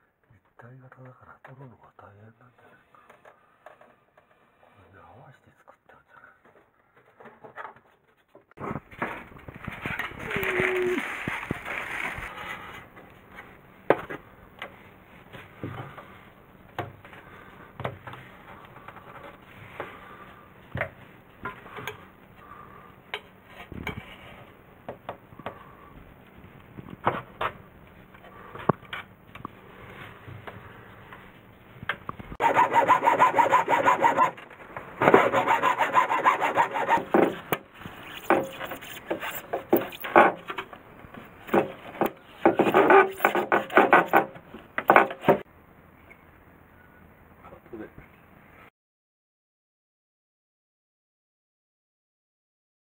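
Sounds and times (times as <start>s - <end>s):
loud continuous rasping: 32.4s - 40.5s
blade scraping caulking: 32.4s - 40.6s, 41.4s - 44.3s.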